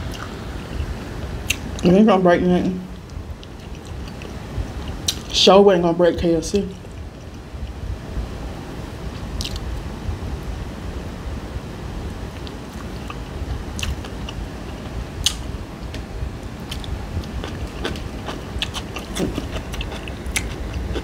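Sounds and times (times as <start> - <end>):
low room hum: 0.0 - 21.0
chewing crispy fried fish: 3.0 - 5.3, 16.6 - 21.0.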